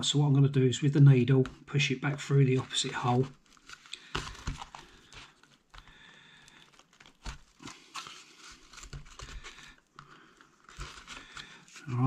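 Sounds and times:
dry bark crinkling and rustling: 2.4 - 12.0.

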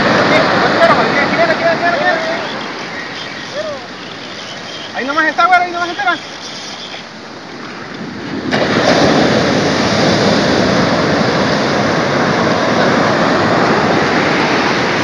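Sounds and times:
surf washing up a beach: 0.0 - 15.0.

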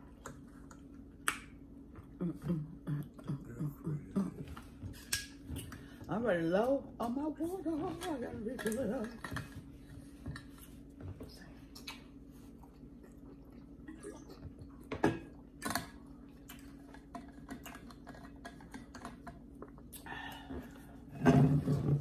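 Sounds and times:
low steady hum: 0.0 - 22.0
chewing: 11.7 - 20.1.

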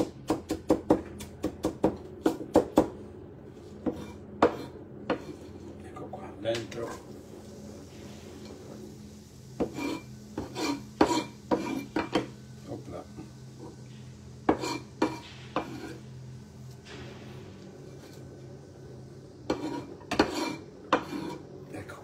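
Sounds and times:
steady low hum: 0.0 - 22.0
cleaver scraping pan and board: 3.8 - 5.6, 9.6 - 12.3, 14.5 - 16.0, 19.5 - 21.4.

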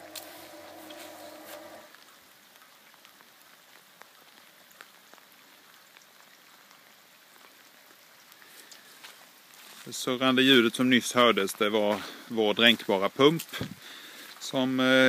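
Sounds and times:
pump humming: 0.0 - 1.9
water drips: 0.0 - 14.9
rain falling: 0.0 - 15.0.

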